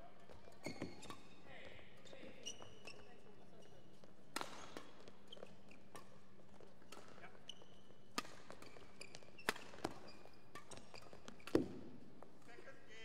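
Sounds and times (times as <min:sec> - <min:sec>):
court shoes squeaking: 0:00.1 - 0:12.5
rackets hitting shuttlecock: 0:04.2 - 0:12.5.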